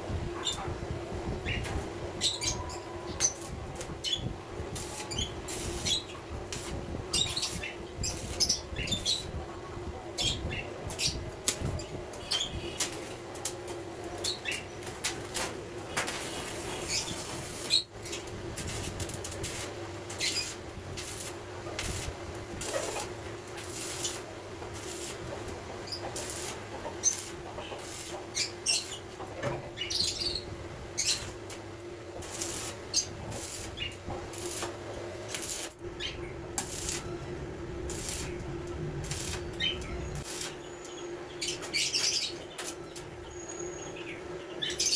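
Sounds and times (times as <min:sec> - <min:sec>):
steady hum: 0:00.0 - 0:41.7
arc welder crackling: 0:01.4 - 0:09.5, 0:10.1 - 0:43.4
birds chirping: 0:15.9 - 0:18.3, 0:25.7 - 0:31.4, 0:38.0 - 0:44.9.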